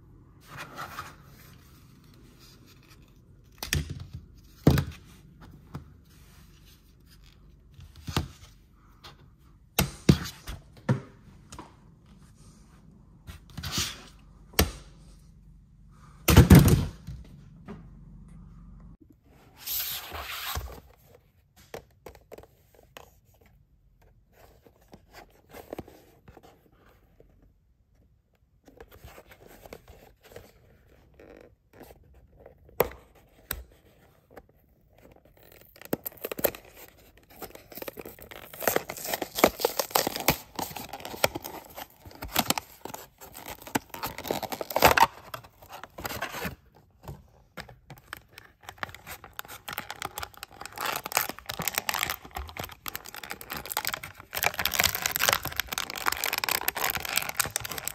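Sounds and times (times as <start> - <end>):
plastic blister pack crinkling: 35.4 - 46.2, 48.1 - 57.9.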